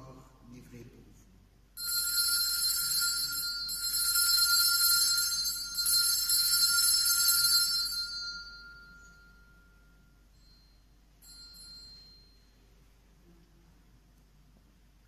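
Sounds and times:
altar bells ringing: 1.8s - 12.7s.

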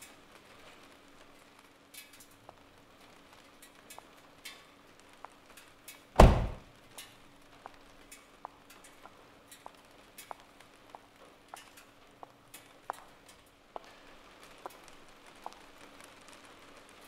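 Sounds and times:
car door shutting: 6.2s - 6.6s.

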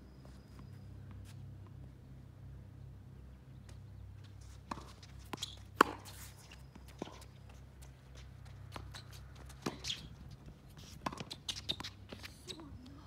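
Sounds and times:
tennis balls struck and bouncing: 3.6s - 12.8s.

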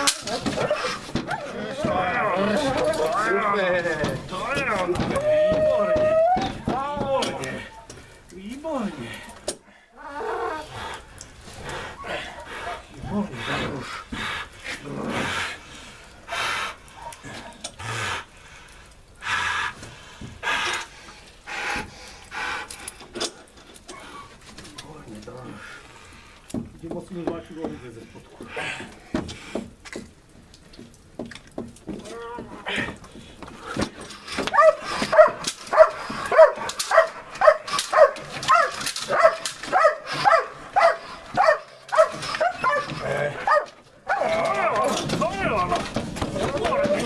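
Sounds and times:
dog breathing hard: 10.7s - 24.3s, 32.8s - 38.4s
dog barking deeply: 34.5s - 44.4s.

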